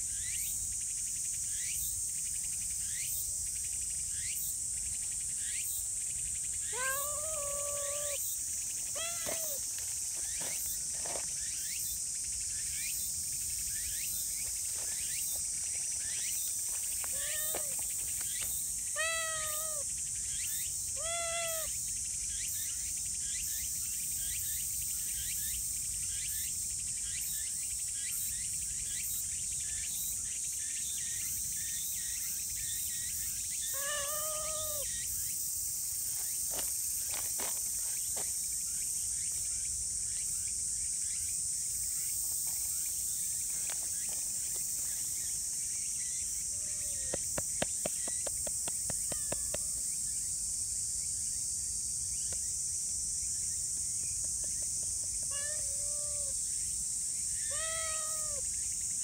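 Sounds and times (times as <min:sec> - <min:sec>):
insects chorus: 0:00.0 - 0:59.0
cat meowing: 0:06.7 - 0:08.2, 0:09.0 - 0:09.6, 0:17.1 - 0:17.8, 0:19.0 - 0:19.8, 0:21.0 - 0:21.7, 0:33.8 - 0:34.8, 0:46.5 - 0:47.1, 0:49.1 - 0:49.8, 0:55.3 - 0:56.4, 0:57.5 - 0:58.4.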